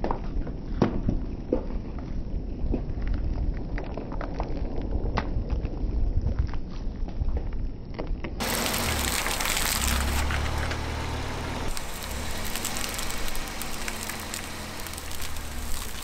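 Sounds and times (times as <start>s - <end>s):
car engine humming: 8.4s - 16.0s
foam crushing under tyre: 8.4s - 16.0s.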